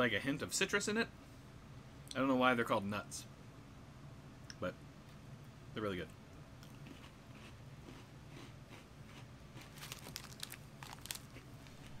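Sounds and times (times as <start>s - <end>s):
plastic wrapper crinkling: 9.7s - 12.0s.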